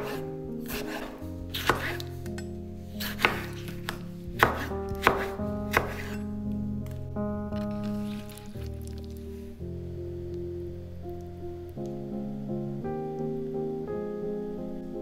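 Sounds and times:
knife chopping on cutting board: 0.0s - 2.1s, 3.0s - 6.2s
background music: 0.0s - 15.0s.

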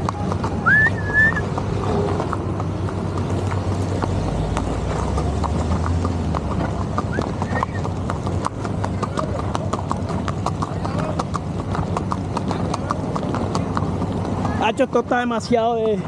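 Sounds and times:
car driving past: 0.0s - 11.8s
horse hooves on asphalt: 0.0s - 16.0s
short rising whistle: 0.6s - 1.4s.

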